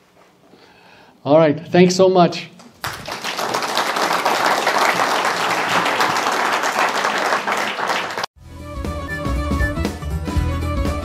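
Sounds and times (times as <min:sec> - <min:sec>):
audience applauding: 0:02.7 - 0:08.3
instrumental music: 0:08.4 - 0:11.0.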